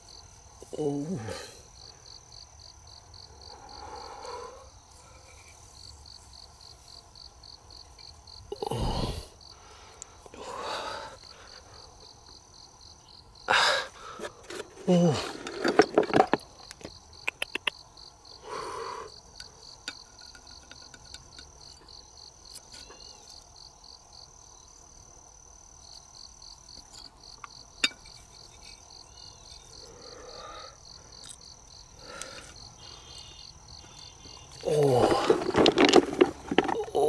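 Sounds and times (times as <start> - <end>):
insects trilling: 0.0 - 37.0
sharp clicks: 17.2 - 17.8.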